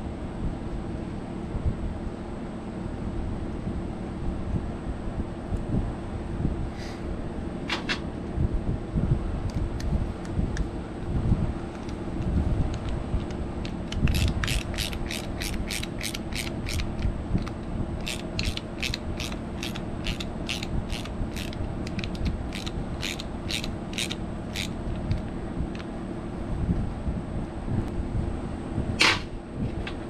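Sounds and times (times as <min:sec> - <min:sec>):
socket ratchet wrench clicking: 0:11.7 - 0:25.9.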